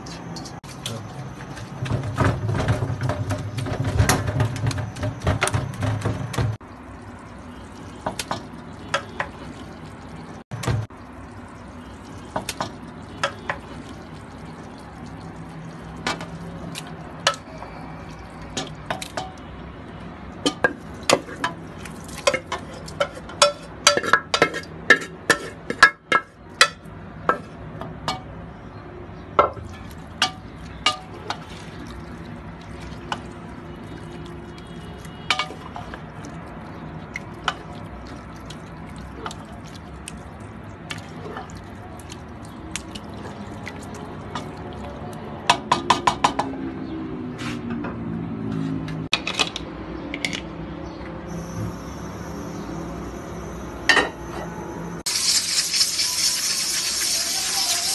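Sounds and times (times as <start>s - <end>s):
cooking food hissing: 51.3s - 53.8s, 55.0s - 57.9s.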